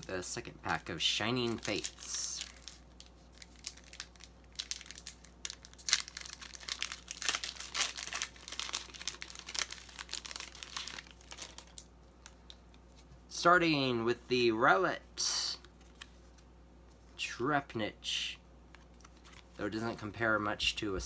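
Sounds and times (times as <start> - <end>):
foil wrapper crinkling: 0.6 - 12.5.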